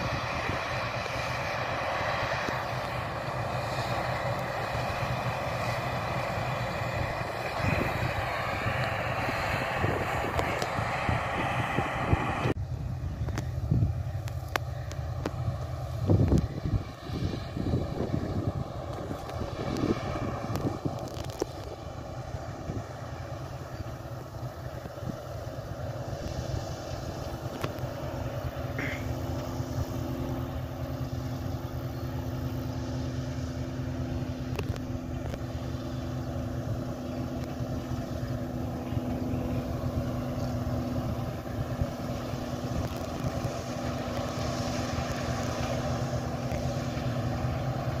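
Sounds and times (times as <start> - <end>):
combine harvester droning: 0.0 - 48.0.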